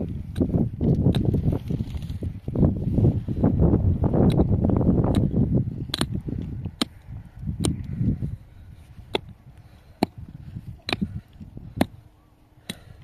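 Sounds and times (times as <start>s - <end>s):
rustling scraping noise: 1.2s - 3.5s.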